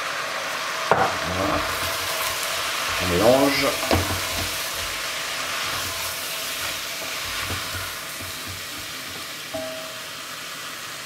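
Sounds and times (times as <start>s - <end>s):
meat sizzling in butter and oil: 0.0s - 11.0s
short ringing clink: 9.6s - 10.0s.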